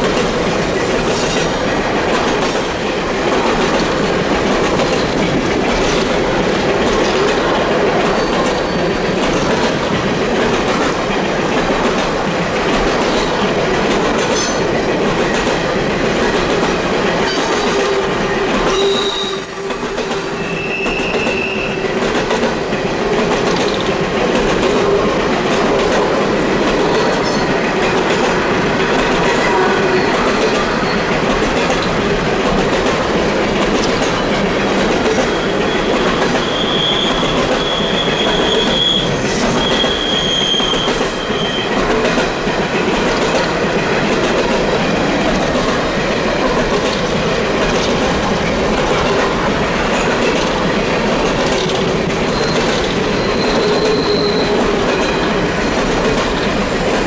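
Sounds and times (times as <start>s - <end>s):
train cars rolling past: 0.0s - 57.0s
high wheel squeal: 17.7s - 21.8s, 35.3s - 41.7s, 52.3s - 55.4s.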